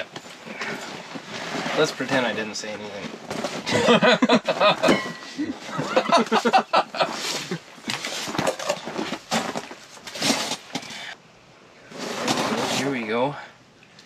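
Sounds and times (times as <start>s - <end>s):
men laughing: 3.6s - 7.8s.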